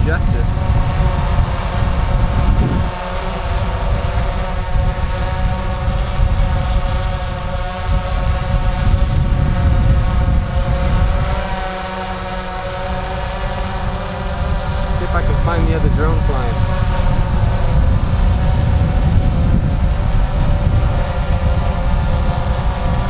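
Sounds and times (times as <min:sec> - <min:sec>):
quadcopter propellers humming: 0:00.0 - 0:23.0
wind rumbling on microphone: 0:00.0 - 0:23.0.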